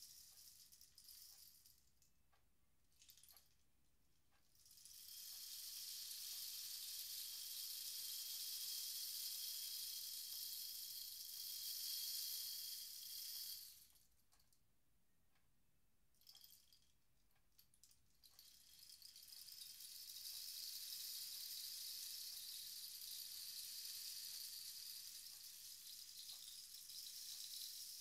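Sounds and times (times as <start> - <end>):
rainstick rattles: 0.0 - 2.0, 4.6 - 14.0, 17.6 - 28.0
rainstick beads trickling: 4.7 - 14.0, 18.3 - 28.0.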